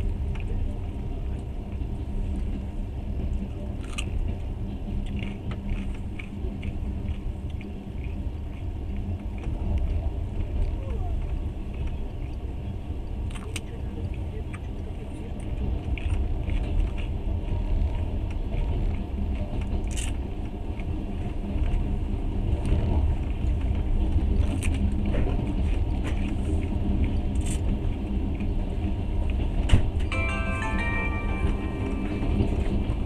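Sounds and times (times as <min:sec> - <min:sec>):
train rumbling: 0:00.0 - 0:33.0
music: 0:30.1 - 0:33.0.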